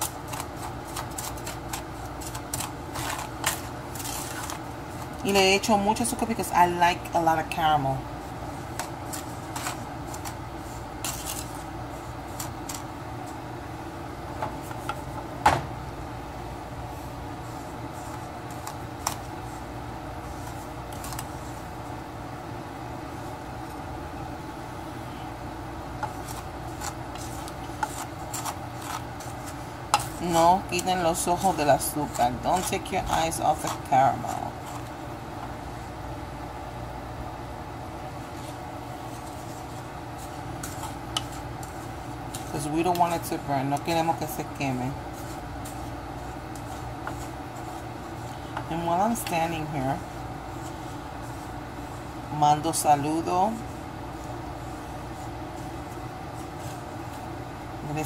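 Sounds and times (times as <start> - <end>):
wooden spoon scraping sugar in pot: 0.0 - 6.4, 8.4 - 13.4, 17.3 - 21.8, 25.9 - 35.8, 38.3 - 58.0
low background hum: 0.0 - 58.0.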